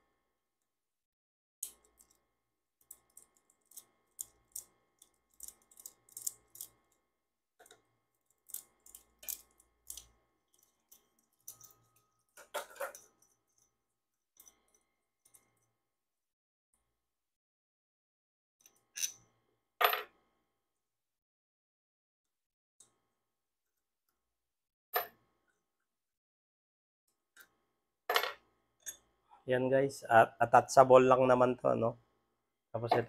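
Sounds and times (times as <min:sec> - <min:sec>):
metal parts clicking and clinking: 0:02.8 - 0:07.0, 0:07.6 - 0:15.7.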